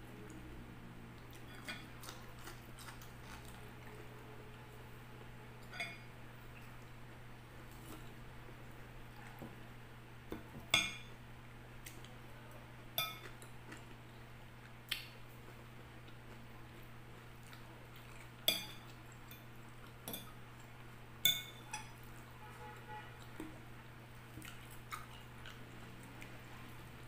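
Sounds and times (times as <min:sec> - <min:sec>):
fork clinking on glass bowl: 0:05.7 - 0:06.1, 0:13.0 - 0:13.3, 0:21.3 - 0:22.0.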